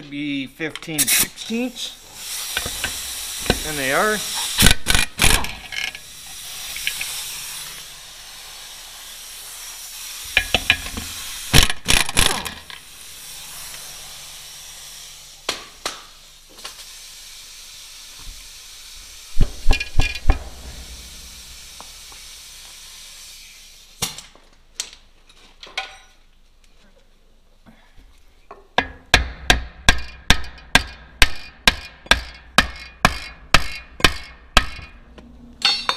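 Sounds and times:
steady air hiss: 0.0s - 24.4s
air impact wrench rattling: 2.2s - 9.2s, 10.0s - 14.2s, 19.4s - 22.5s
metallic clanks: 35.6s - 35.9s.

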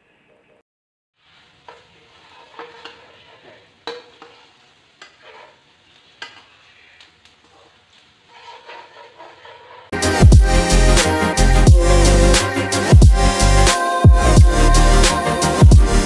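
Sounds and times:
onions sizzling in oil: 1.2s - 6.6s
spatula scraping and tapping pan: 1.6s - 6.7s, 7.4s - 9.9s.

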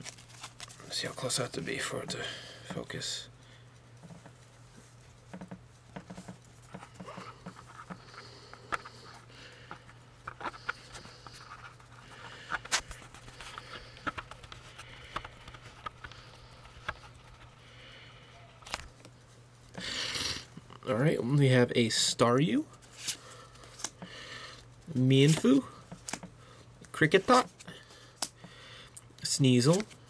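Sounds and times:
low steady hum: 0.0s - 30.0s
fingers handling a card: 6.0s - 17.5s, 18.5s - 19.1s, 22.8s - 26.3s, 27.2s - 28.4s, 29.6s - 30.0s.

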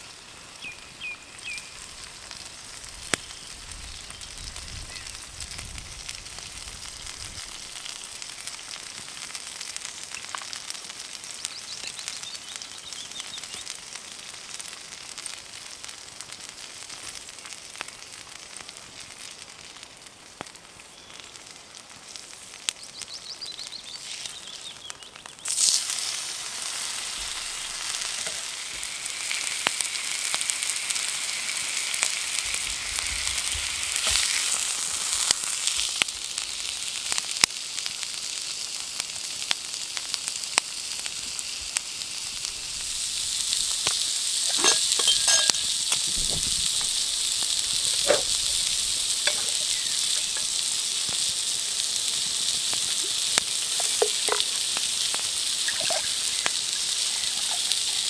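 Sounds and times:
steak sizzling in oil: 0.0s - 58.0s
sharp popping of fat: 52.7s - 56.6s.

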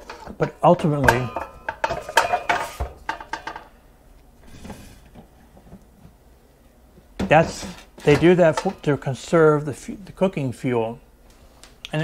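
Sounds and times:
cookware knocking and clattering: 0.0s - 3.7s, 7.2s - 9.1s.

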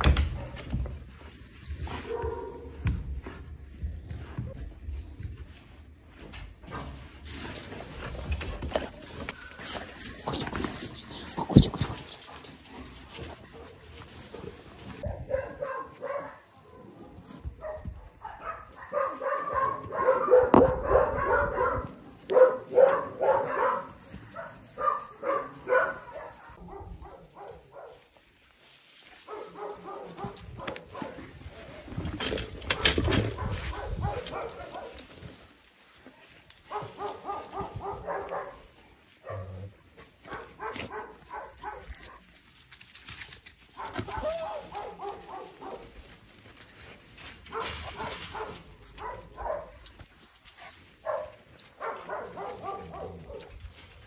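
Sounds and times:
rustling noise: 0.0s - 54.0s
dogs barking: 2.0s - 2.8s, 13.5s - 28.0s, 29.3s - 31.2s, 33.0s - 35.1s, 36.7s - 42.3s, 43.8s - 46.0s, 47.5s - 49.8s, 51.0s - 53.6s.

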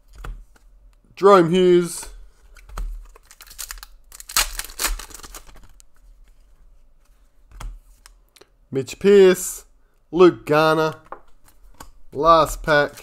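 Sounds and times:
cards and packaging rustling: 1.8s - 8.1s, 11.3s - 13.0s.

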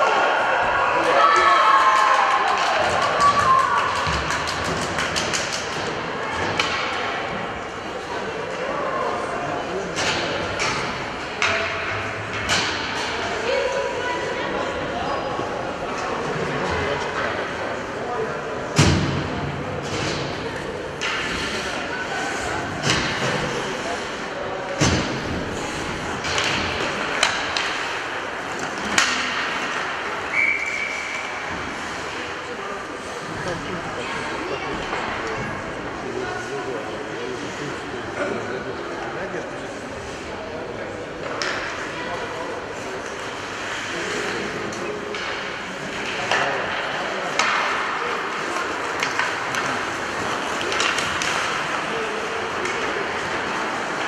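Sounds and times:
hockey sticks and puck clacking: 1.0s - 8.8s, 9.9s - 13.8s, 18.8s - 33.3s, 41.1s - 54.0s
skates scraping ice: 19.8s - 35.2s, 41.3s - 54.0s
stick clacking on puck: 26.1s - 30.1s, 43.0s - 54.0s.

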